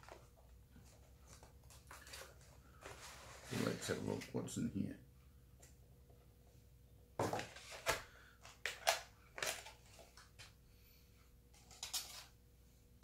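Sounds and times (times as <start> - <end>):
packaging rustling and crinkling: 0.0 - 4.0.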